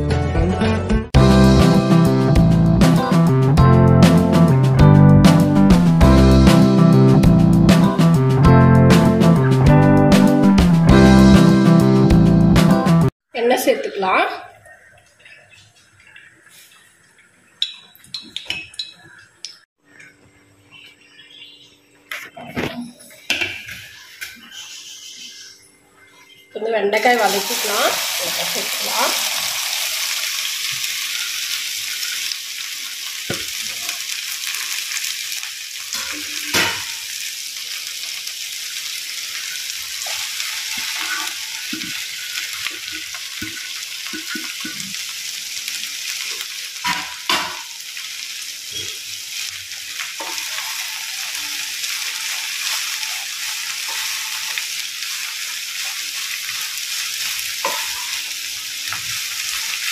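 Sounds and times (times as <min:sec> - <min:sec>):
okra sizzling in hot oil: 0:27.0 - 0:59.9
spatula stirring in pan: 0:39.2 - 0:45.1, 0:48.8 - 0:59.9.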